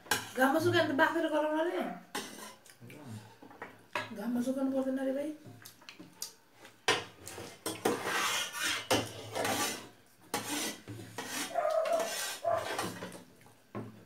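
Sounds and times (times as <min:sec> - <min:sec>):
spoons scraping steel plates: 0:07.6 - 0:13.2.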